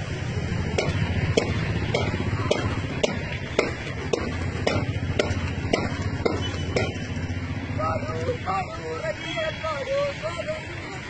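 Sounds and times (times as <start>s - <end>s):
rhythmic sharp claps: 0.7s - 7.2s.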